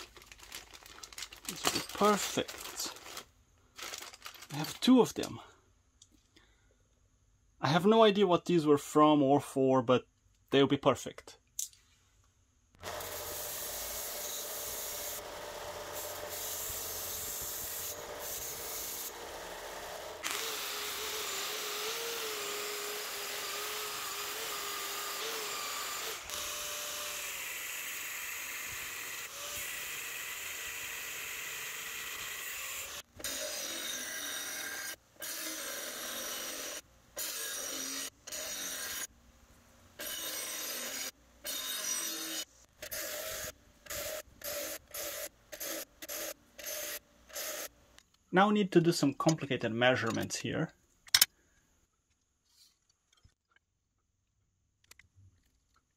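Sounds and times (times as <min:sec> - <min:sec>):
angle grinder cutting steel: 0:12.8 - 0:39.1, 0:40.0 - 0:47.7
belt sander grinding steel: 0:12.8 - 0:39.1
bench grinder: 0:12.8 - 0:39.1, 0:40.0 - 0:47.7.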